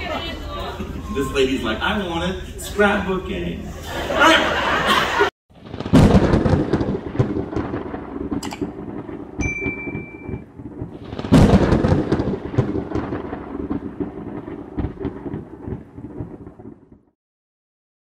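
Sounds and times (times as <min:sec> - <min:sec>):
thunder rumbling: 0:05.5 - 0:17.1.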